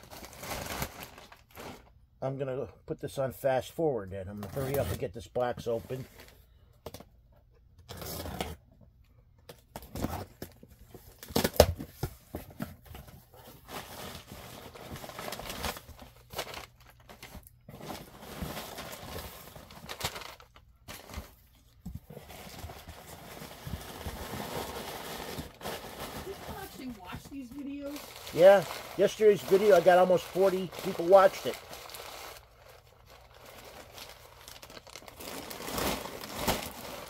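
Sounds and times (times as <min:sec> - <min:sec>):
plastic packaging crinkling: 0:00.0 - 0:01.9, 0:13.6 - 0:37.0
cardboard box ripping: 0:22.1 - 0:37.0.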